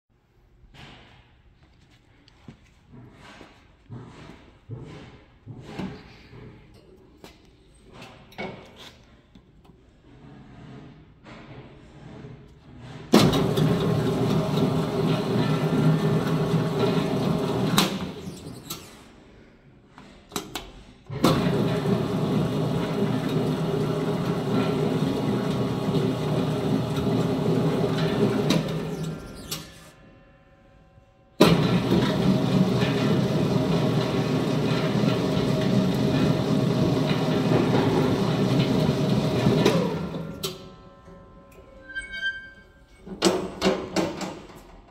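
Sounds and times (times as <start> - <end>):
dough mixer motor humming: 13.2 - 18.2, 21.3 - 29.0, 31.5 - 40.3.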